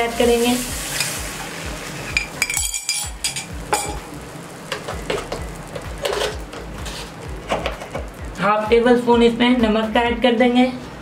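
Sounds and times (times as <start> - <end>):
light sizzling: 0.0 - 9.8
spatula scraping frying pan: 4.6 - 7.9.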